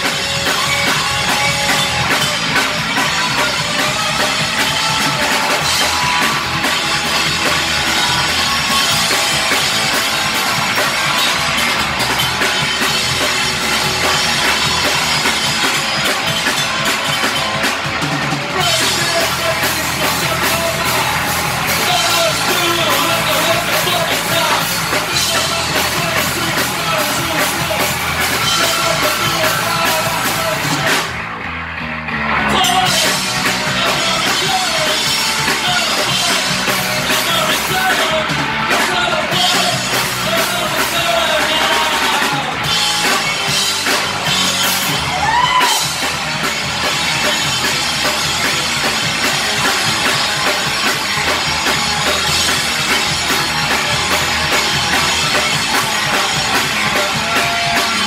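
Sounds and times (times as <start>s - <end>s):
punk rock band playing: 0.0s - 58.0s
person singing: 18.4s - 31.1s, 32.4s - 43.2s, 55.2s - 58.0s.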